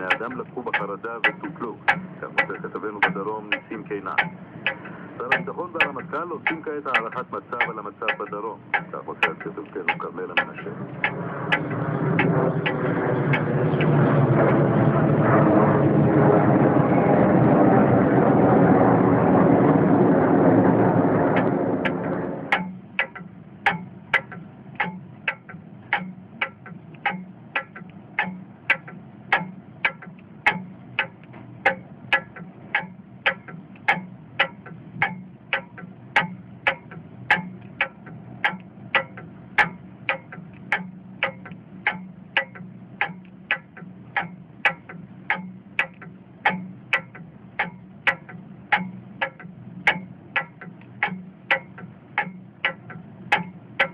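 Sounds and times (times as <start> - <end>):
steady even ticking: 0.0 - 15.4, 20.6 - 53.9
airplane engine passing overhead: 0.0 - 24.6.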